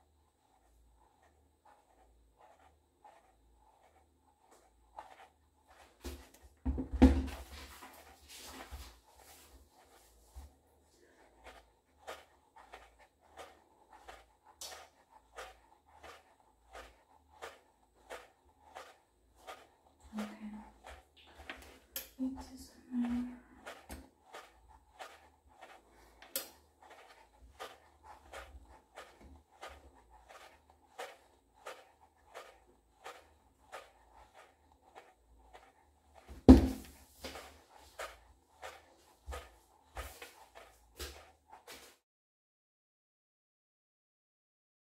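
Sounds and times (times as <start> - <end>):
shoe tapping against heel: 6.0 - 7.9, 36.3 - 40.4
shoe slapping against heel: 36.4 - 37.5.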